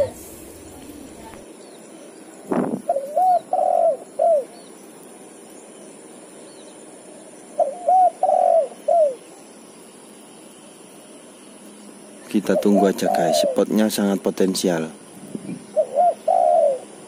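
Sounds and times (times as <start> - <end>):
dove cooing: 0.0 - 1.4, 2.8 - 4.6, 7.5 - 9.3, 12.4 - 13.9, 15.3 - 17.0.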